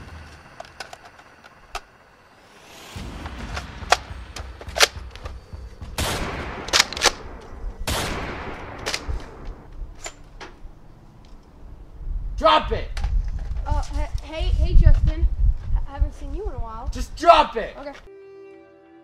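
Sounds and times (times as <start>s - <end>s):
steady low rumble: 0.0s - 17.8s
sharp gunshot-like pops: 3.0s - 9.5s.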